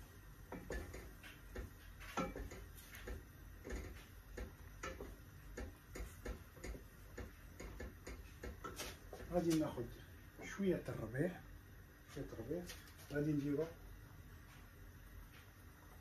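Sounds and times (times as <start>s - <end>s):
wooden spoon knocking metal pot: 0.5s - 9.3s.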